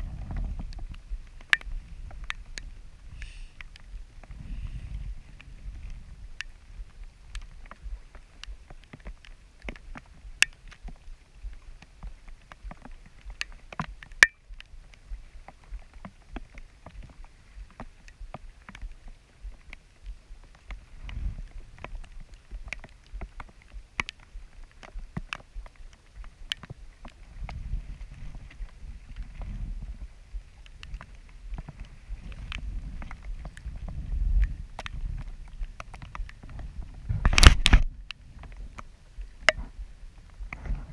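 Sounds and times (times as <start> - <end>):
low rumble of sailboat moving: 0.0 - 40.9
raindrops ticking on camera: 0.0 - 40.9.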